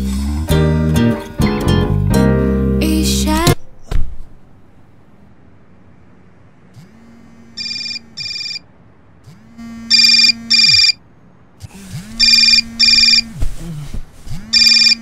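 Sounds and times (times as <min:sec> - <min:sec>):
phone vibrating buzz: 0:06.8 - 0:11.0, 0:11.7 - 0:13.7, 0:14.4 - 0:15.0
phone alarm beeps: 0:07.6 - 0:08.6, 0:09.9 - 0:11.0, 0:12.2 - 0:13.2, 0:14.6 - 0:15.0.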